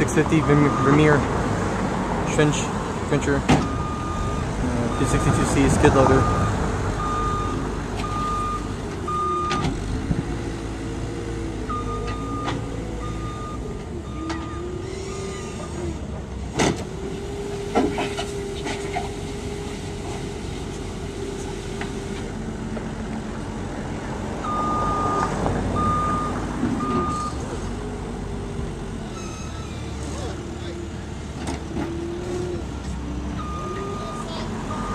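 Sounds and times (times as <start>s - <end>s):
diesel engine revving: 0.0s - 34.9s
reversing alarm beeping: 0.3s - 1.0s, 3.6s - 9.6s, 11.7s - 15.6s, 24.4s - 27.4s, 29.0s - 30.0s, 33.4s - 34.9s.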